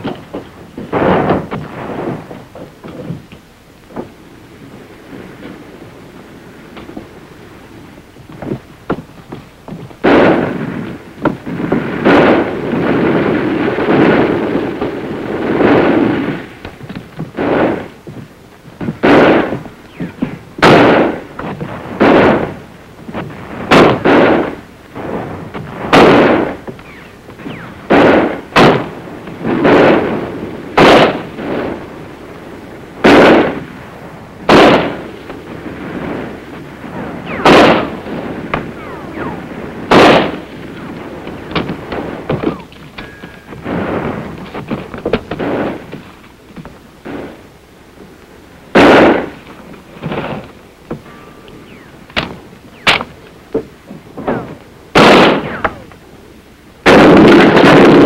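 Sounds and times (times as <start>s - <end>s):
rough dense noise: 0.0s - 58.0s
rifle shots with echo: 10.0s - 10.8s, 12.0s - 16.2s, 19.0s - 22.6s, 23.4s - 31.9s, 33.0s - 33.7s, 34.5s - 35.5s, 36.9s - 45.9s, 48.7s - 49.4s, 54.2s - 55.9s, 56.8s - 58.0s.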